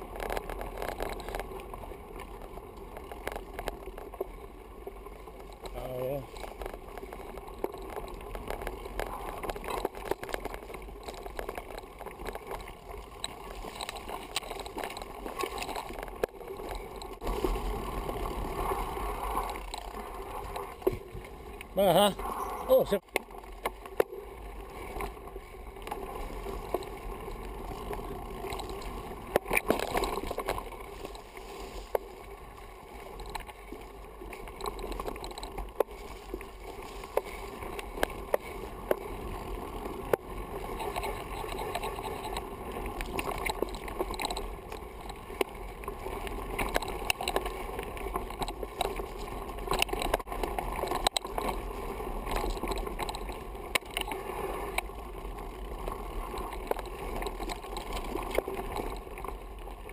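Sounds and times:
bike tyres rumbling on dirt: 0:00.0 - 0:59.9
bike rattling and knocking: 0:05.4 - 0:18.5, 0:25.8 - 0:32.0, 0:34.2 - 0:59.3.

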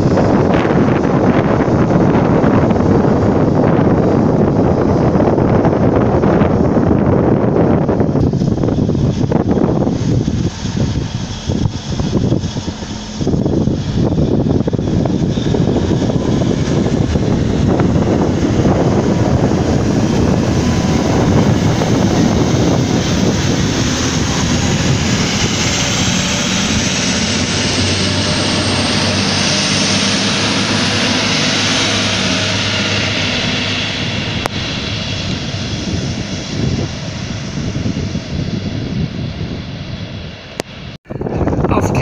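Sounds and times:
high whine rising in pitch: 0:00.0 - 0:41.6
train diesel engines: 0:08.8 - 0:35.2.

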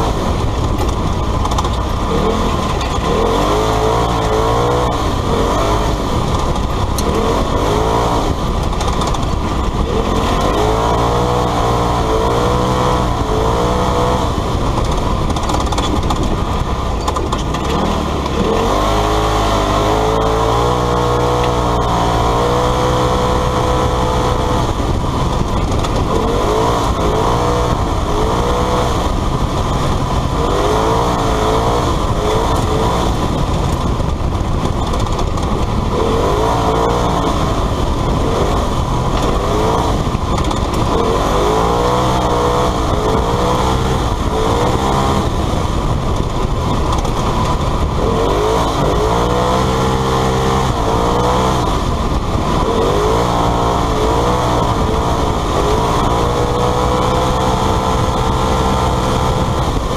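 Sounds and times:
engine running hard: 0:00.0 - 0:59.9
road and wind noise: 0:00.0 - 0:59.9.

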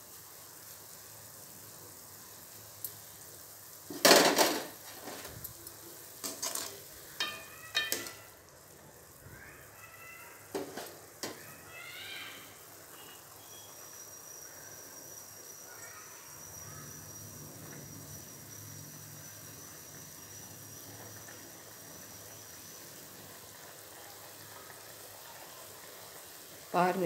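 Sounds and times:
water bubbling in a pot: 0:00.0 - 0:27.0
faint bird chirps: 0:11.4 - 0:17.4.

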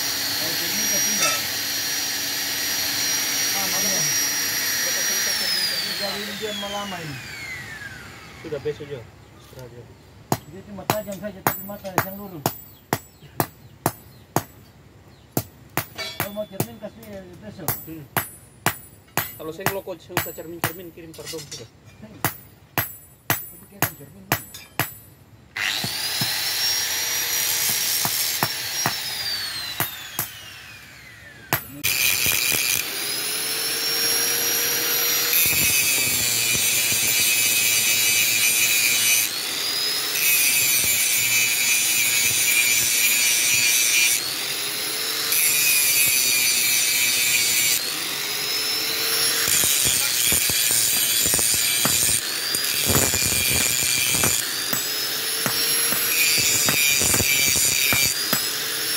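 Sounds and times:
angle grinder grinding steel: 0:00.0 - 0:08.9, 0:25.6 - 0:58.9.

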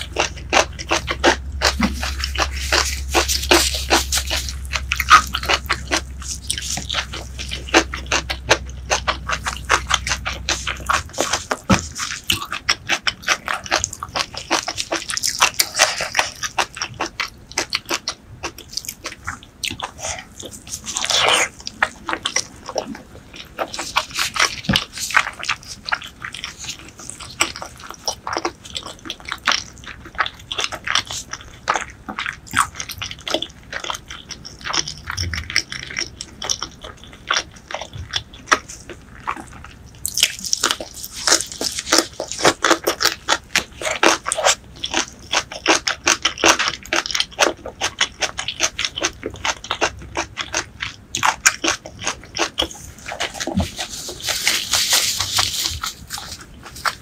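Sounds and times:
chewing with mouth clicks: 0:00.0 - 0:57.0
crunching: 0:00.0 - 0:57.0.

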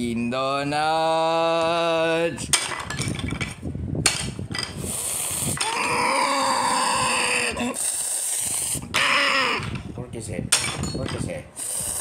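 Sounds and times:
wooden tiles clattering: 0:02.5 - 0:04.8.

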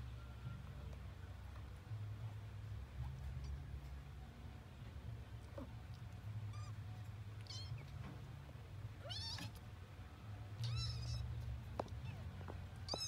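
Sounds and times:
low steady hum: 0:00.0 - 0:13.0
kittens mewing: 0:10.6 - 0:11.3.

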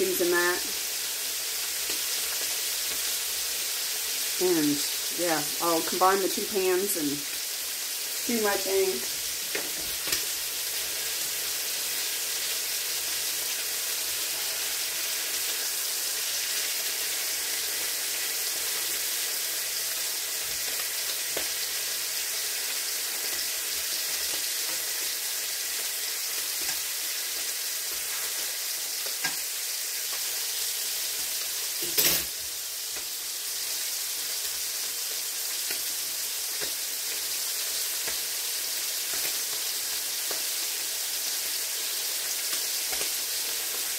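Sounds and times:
meat sizzling in pans: 0:00.0 - 0:43.9.

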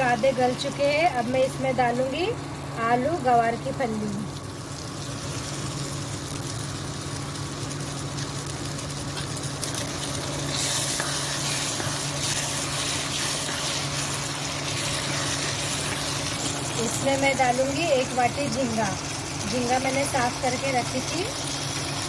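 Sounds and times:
vegetables sizzling in a pan: 0:00.0 - 0:22.0
spatula stirring: 0:09.6 - 0:16.7.

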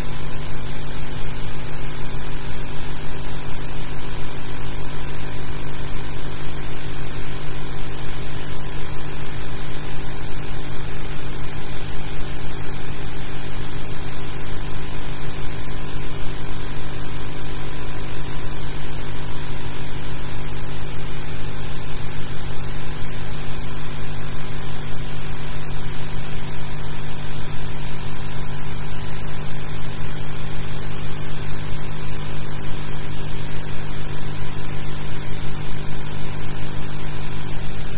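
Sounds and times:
electrical hum: 0:00.0 - 0:37.9.

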